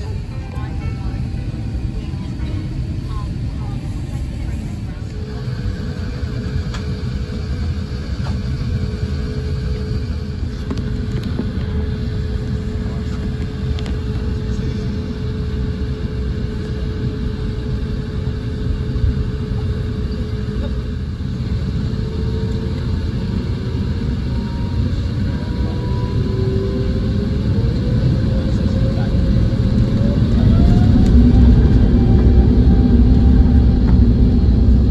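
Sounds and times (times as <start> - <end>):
higher whine rising in pitch: 0.0 - 7.8, 21.6 - 34.9
aircraft engines rumbling: 0.0 - 34.9.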